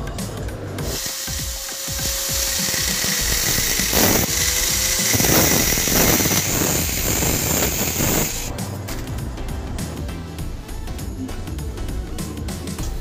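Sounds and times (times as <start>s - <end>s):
angle grinder cutting steel: 0.8s - 8.5s.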